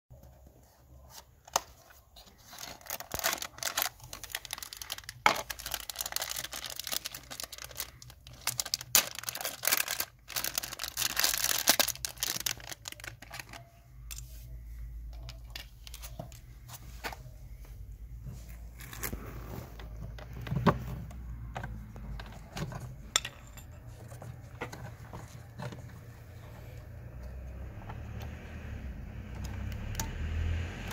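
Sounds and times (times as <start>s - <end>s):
handling small parts: 0.2s - 27.4s
cardboard packaging tearing: 2.4s - 13.6s.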